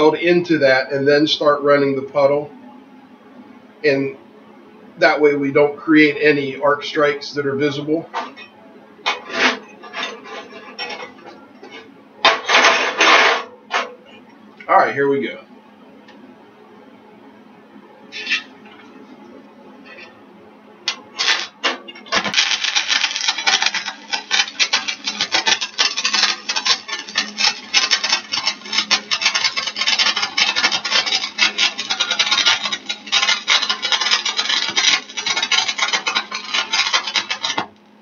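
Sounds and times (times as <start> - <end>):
welding arc crackling: 9.1 - 13.9, 18.1 - 19.0, 20.8 - 37.8.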